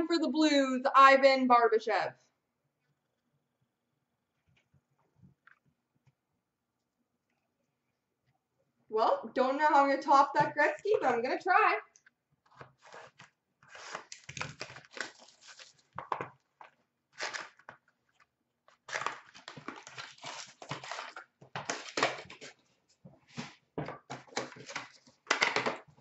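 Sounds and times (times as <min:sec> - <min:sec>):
card packs torn open: 0:12.7 - 0:16.3, 0:17.1 - 0:17.8, 0:18.7 - 0:22.5
wrappers crinkling: 0:12.8 - 0:16.3, 0:17.1 - 0:22.5.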